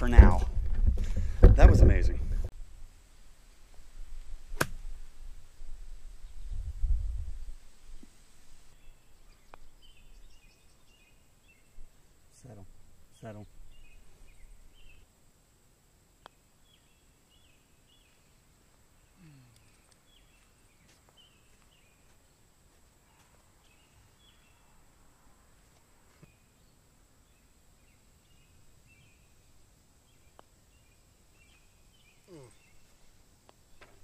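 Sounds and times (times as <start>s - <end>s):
putter striking golf ball: 4.6s - 4.8s
faint bird chirps: 8.7s - 15.1s, 16.2s - 22.4s, 23.0s - 25.0s, 26.1s - 33.1s.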